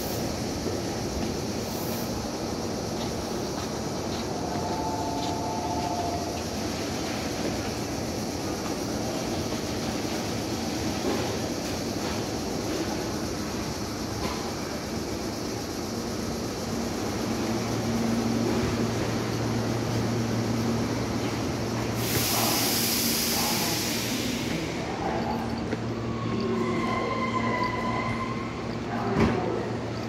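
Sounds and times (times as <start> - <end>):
electric train humming: 0.0 - 30.0
thin high tone: 4.4 - 6.5
air brake hiss: 22.0 - 24.8.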